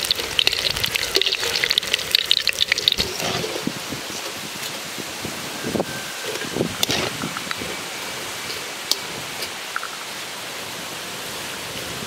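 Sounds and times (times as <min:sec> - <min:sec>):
food sizzling in hot oil: 0:00.0 - 0:04.7.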